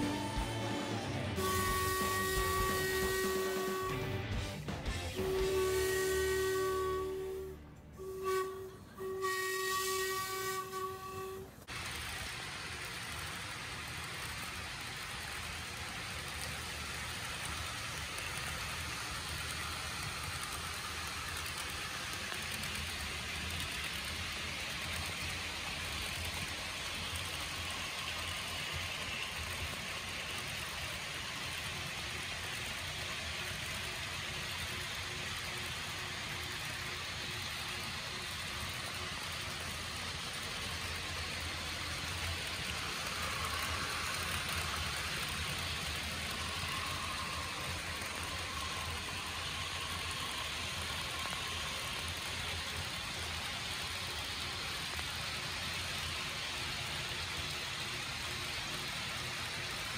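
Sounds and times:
low engine drone: 0.0s - 5.6s
model train wheels rushing on rail: 0.0s - 59.9s.

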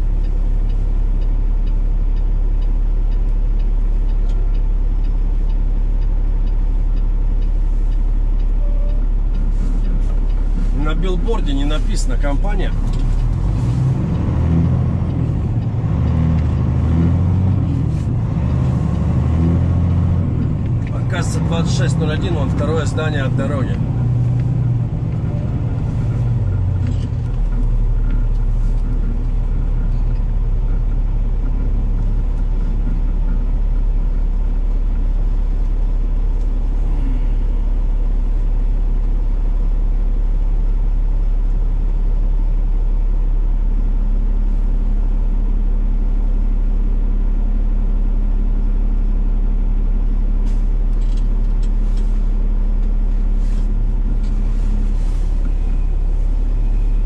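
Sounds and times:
diesel truck engine running: 0.0s - 57.0s.

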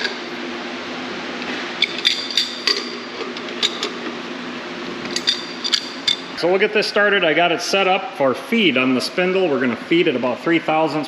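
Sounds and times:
machine humming: 0.0s - 11.0s.

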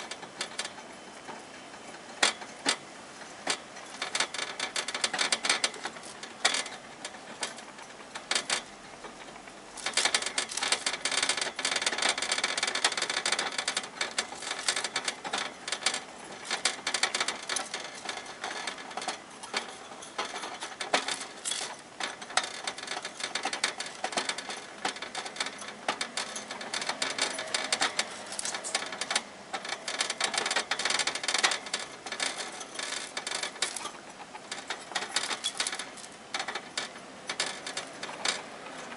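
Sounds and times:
hamster gnawing cage bars: 9.8s - 38.9s.

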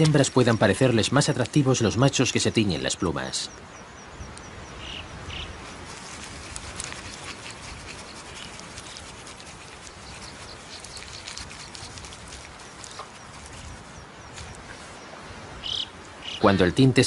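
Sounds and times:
light crackles and ticks: 0.0s - 2.0s, 5.8s - 15.0s
dry rustling: 5.5s - 15.3s.

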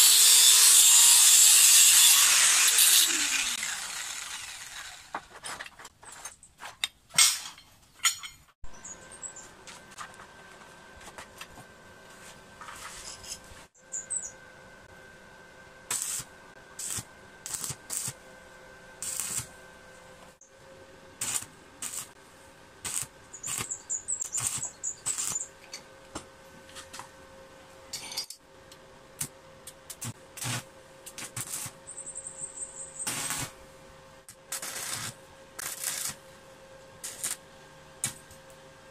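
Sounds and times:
bird chirps: 13.8s - 14.4s, 23.3s - 25.5s, 31.9s - 33.1s.

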